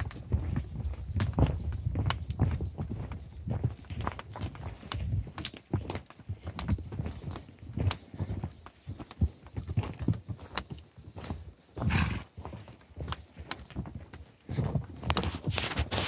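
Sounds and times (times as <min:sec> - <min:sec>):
hoof thuds on dirt: 0:00.0 - 0:16.0
footstep scuffs on earth: 0:10.4 - 0:13.3, 0:14.8 - 0:16.0
brush rustling: 0:15.2 - 0:16.0.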